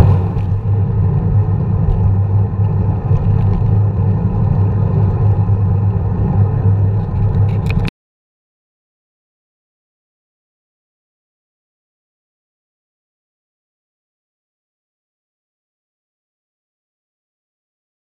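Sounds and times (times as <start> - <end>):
bicycle road vibration: 0.0 - 7.9
wind rumble on microphone: 0.0 - 7.9.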